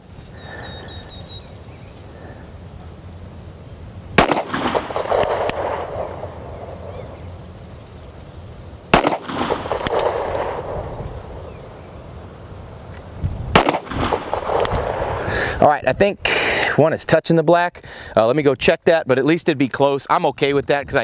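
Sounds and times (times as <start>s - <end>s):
pistol shots with echo: 4.2s - 7.1s, 8.9s - 11.5s, 13.6s - 15.0s.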